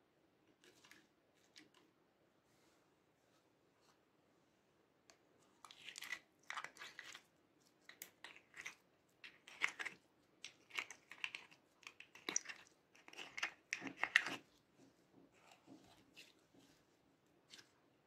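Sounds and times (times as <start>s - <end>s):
slime squelching and crackling: 5.6s - 14.7s.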